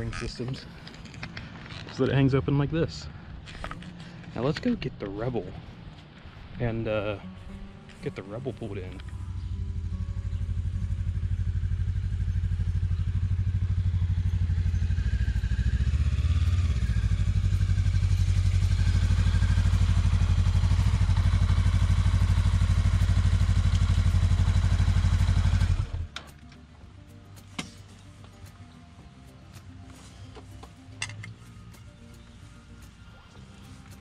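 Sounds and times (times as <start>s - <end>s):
motorcycle engine running slowly: 7.3s - 26.5s.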